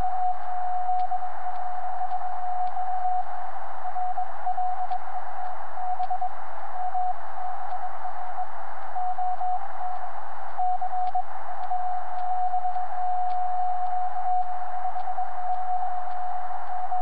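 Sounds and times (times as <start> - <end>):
faint clicks: 0.3 - 3.2, 4.1 - 6.2, 8.8 - 16.8.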